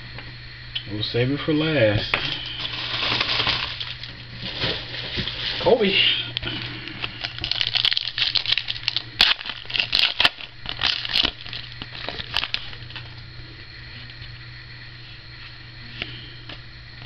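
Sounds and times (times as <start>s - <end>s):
foil pack tearing and crinkling: 2.3s - 13.1s.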